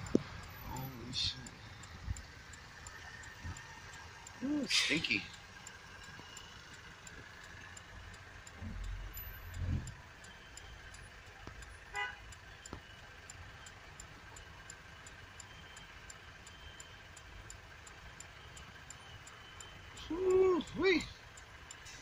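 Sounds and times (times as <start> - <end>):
faint street traffic: 0.0 - 22.0
car horn toot: 11.9 - 12.3.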